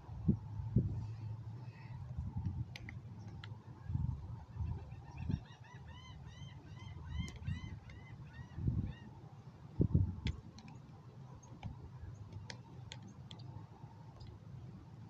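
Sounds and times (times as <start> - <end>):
wind buffeting microphone: 0.0 - 1.4, 2.0 - 5.5, 6.9 - 9.1, 9.8 - 10.4
sharp clicks: 2.4 - 3.6, 10.2 - 13.5
bird calling: 4.4 - 9.2.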